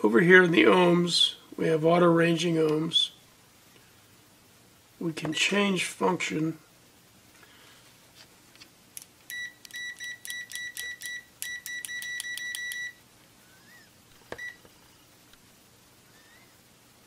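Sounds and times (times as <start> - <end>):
multimeter beeps: 9.3 - 13.0, 14.3 - 14.6.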